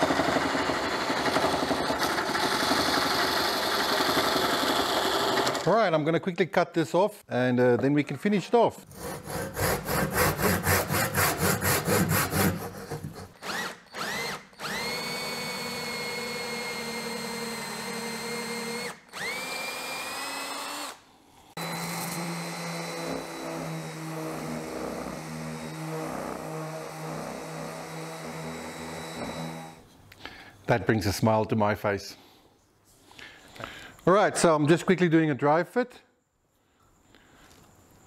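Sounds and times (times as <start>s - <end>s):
handsaw cutting wood: 0.0s - 5.6s, 8.9s - 29.8s
power drill whining: 0.0s - 5.7s, 13.3s - 21.0s, 21.6s - 29.9s
orbital sander running: 13.4s - 20.9s, 21.6s - 24.4s.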